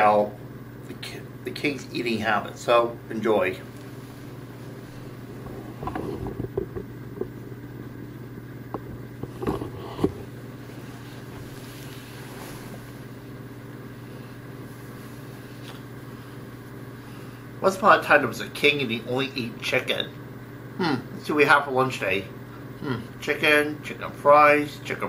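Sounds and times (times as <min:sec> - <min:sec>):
low indoor hum: 0:00.0 - 0:25.0
knocks and rustles: 0:05.3 - 0:07.4, 0:08.7 - 0:13.0.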